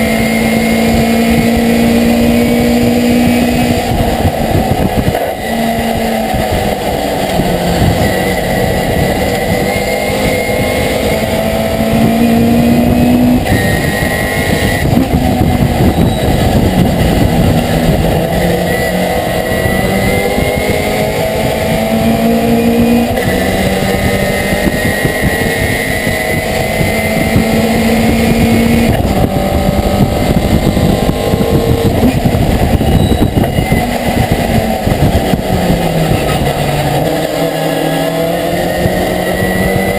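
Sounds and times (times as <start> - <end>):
racing truck engine: 0.0 - 39.9.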